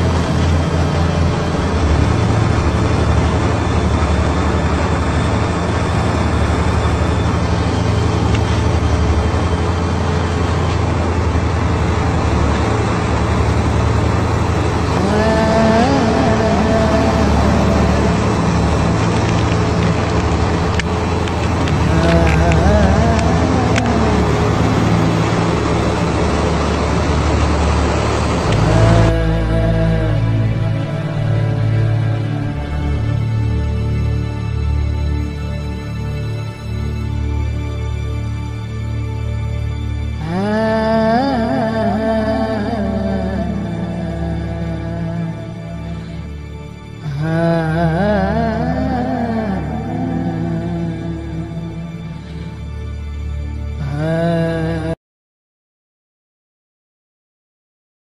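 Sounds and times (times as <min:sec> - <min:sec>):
rushing air: 0:00.0 - 0:39.4
aircraft engine drone: 0:00.0 - 0:55.0.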